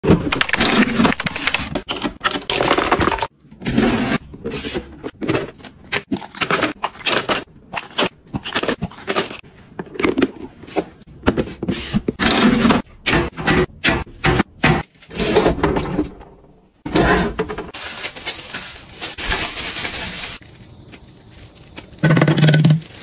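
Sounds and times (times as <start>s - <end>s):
plastic wrappers crinkling: 17.7s - 23.0s.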